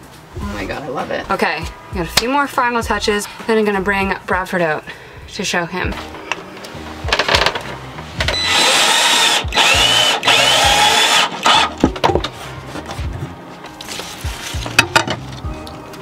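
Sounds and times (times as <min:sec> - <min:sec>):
knocks and handling clicks: 0:06.2 - 0:08.4
cordless drill whining: 0:08.2 - 0:11.8.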